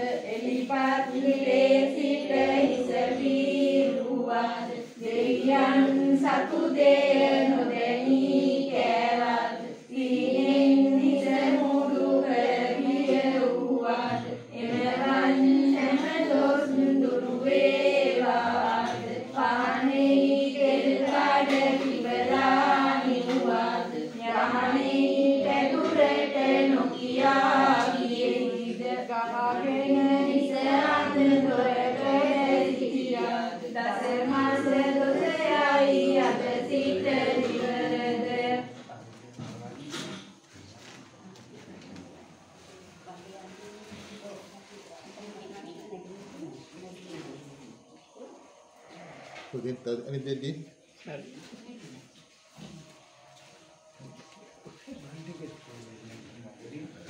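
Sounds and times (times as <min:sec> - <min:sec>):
women chanting in unison: 0:00.0 - 0:38.9, 0:51.7 - 0:55.2.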